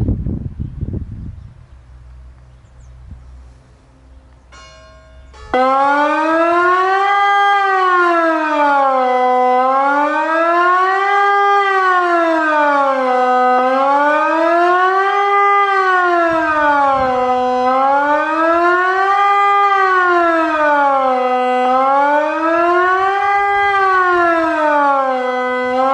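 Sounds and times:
electronic siren wailing: 5.4s - 25.9s.

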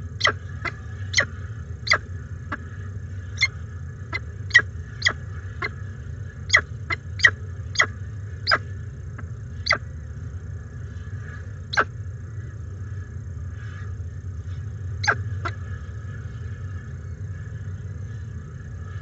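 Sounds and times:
low hum: 0.0s - 19.0s
falcon chick begging cheeps: 15.0s - 15.6s.

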